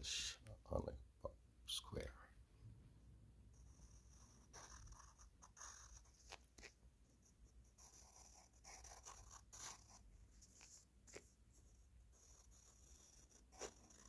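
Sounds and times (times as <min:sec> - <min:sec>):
pencil scratching on paper: 0:03.5 - 0:14.0.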